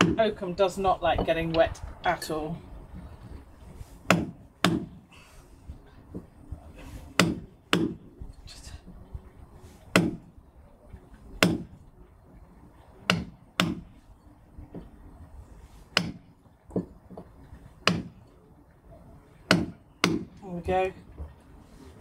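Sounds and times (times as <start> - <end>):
mallet striking caulking iron: 4.1 - 5.0, 7.2 - 8.1, 9.9 - 10.2, 11.4 - 11.7, 13.1 - 13.9, 15.9 - 16.3, 17.8 - 18.2, 19.5 - 20.4.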